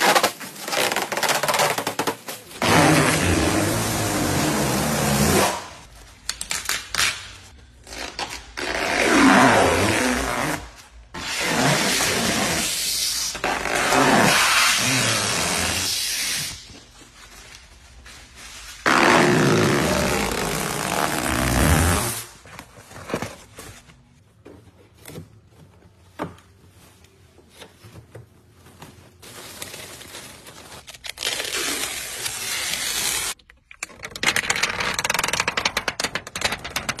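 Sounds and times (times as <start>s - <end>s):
plastic film peeling and rustling: 28.5s - 33.4s.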